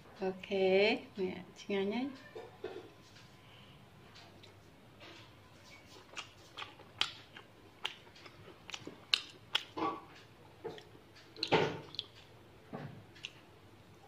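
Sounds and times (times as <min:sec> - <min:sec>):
chewing crunchy vegetables: 0:04.2 - 0:12.4, 0:13.1 - 0:13.5.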